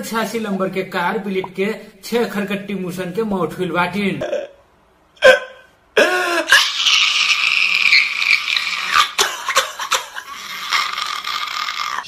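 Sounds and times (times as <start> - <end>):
man wailing and sobbing: 5.2 - 12.0.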